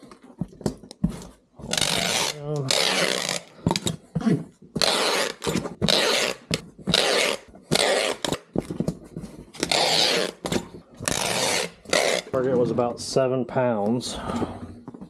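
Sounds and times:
packing tape pulled from dispenser: 1.7 - 3.5, 4.8 - 8.5, 9.6 - 12.3.

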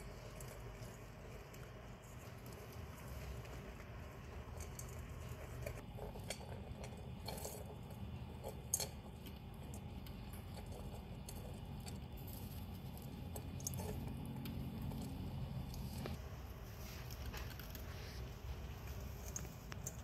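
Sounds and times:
low background hum: 0.0 - 20.0
hamsters rustling in bedding: 15.1 - 20.0.

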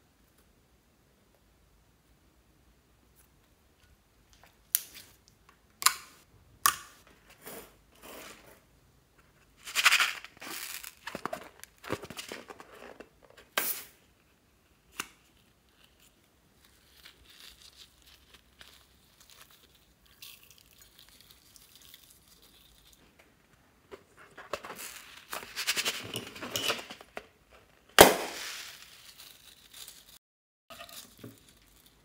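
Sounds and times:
rubbing and crinkling: 7.1 - 14.0, 15.2 - 32.0.

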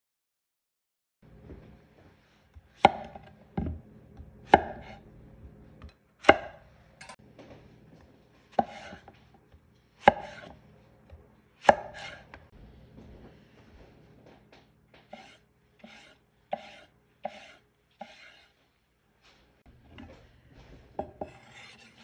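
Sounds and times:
knife cutting on wooden board: 4.5 - 5.0, 8.6 - 9.2, 10.0 - 10.6, 11.6 - 12.4, 15.0 - 18.6, 21.1 - 22.0.

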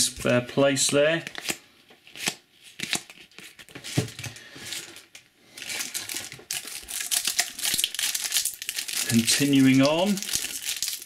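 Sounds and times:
foil pack crinkling: 4.3 - 11.0.

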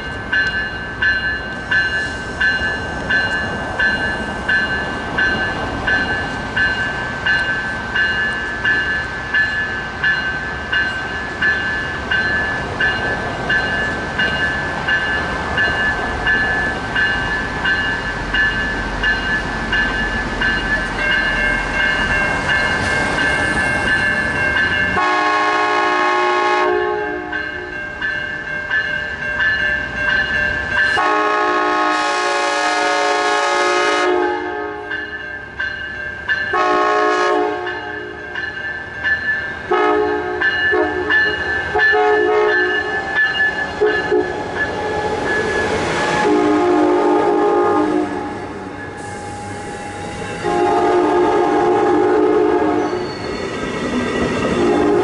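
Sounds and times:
crossing warning bell ringing: 0.0 - 55.0
train cars rolling past: 0.0 - 55.0
train horn blasts: 25.0 - 27.4, 31.0 - 35.0, 36.5 - 38.2, 39.7 - 41.2, 41.8 - 42.9, 43.8 - 44.4, 46.2 - 48.4, 50.4 - 53.0, 54.6 - 55.0.

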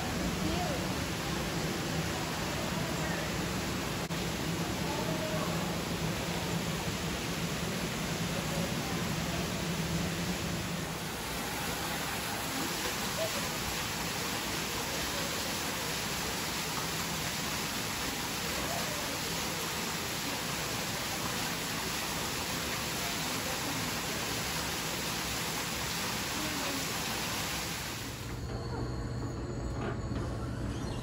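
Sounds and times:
rushing falling water: 0.0 - 28.4.

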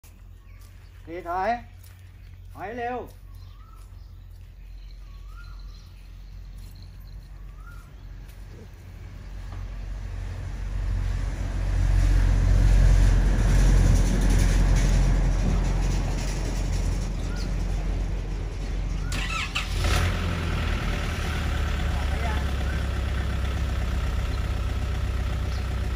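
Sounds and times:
vehicle engine rumbling: 0.0 - 25.9.

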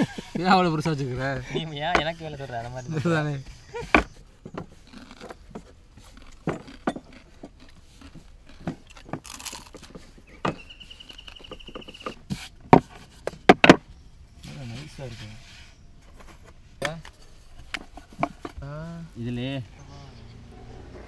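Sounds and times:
rolling pins knocking on wooden boards: 11.4 - 13.9.

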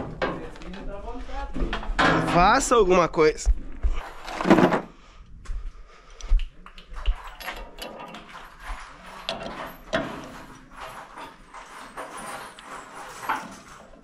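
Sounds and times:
hand tools clinking: 6.6 - 14.0.

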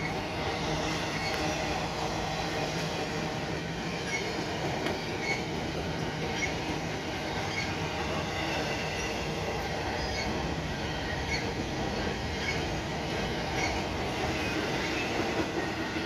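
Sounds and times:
train wheels rumbling on rail: 0.0 - 16.0
high wheel squeaks: 4.0 - 5.6.

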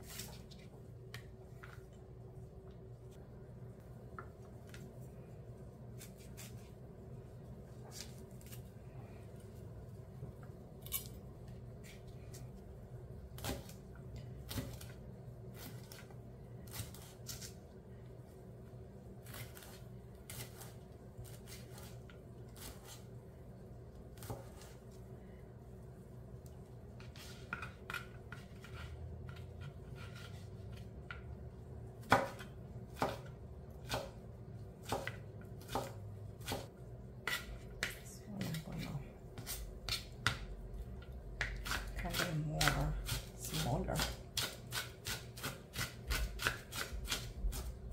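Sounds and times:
knife chopping on plastic board: 32.0 - 34.2, 34.8 - 38.6, 39.4 - 40.5, 41.4 - 47.7.

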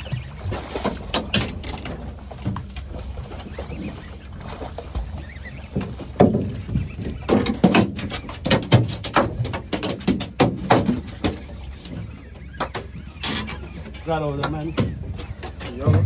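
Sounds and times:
irregular short knocks and thumps: 5.7 - 11.6.

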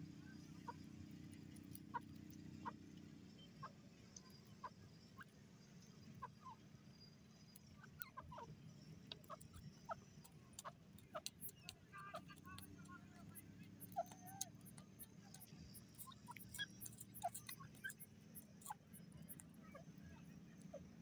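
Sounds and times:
faint low hum: 0.0 - 21.0
bird clucking: 1.6 - 2.8, 7.8 - 8.5, 9.1 - 19.9.

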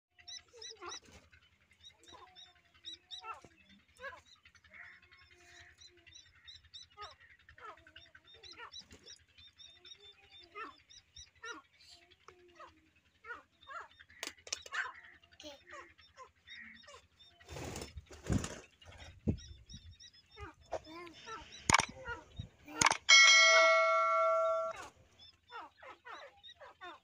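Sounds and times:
francolin chicks peeping: 0.2 - 27.0
lower drawn-out bird calls: 19.0 - 27.0.

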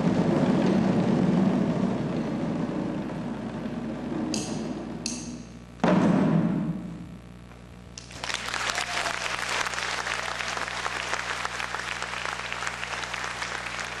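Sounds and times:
drum stroke: 0.0 - 7.1
audience applauding: 8.1 - 14.0.

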